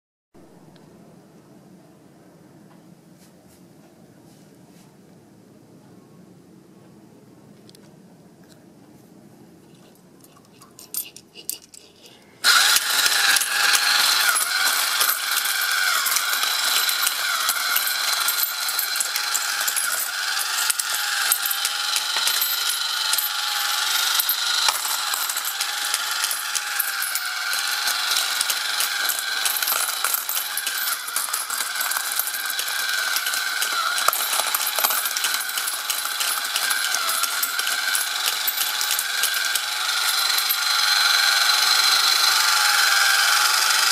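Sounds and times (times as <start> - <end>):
coins clinking: 9.8 - 43.9
small motor whining: 12.4 - 43.9.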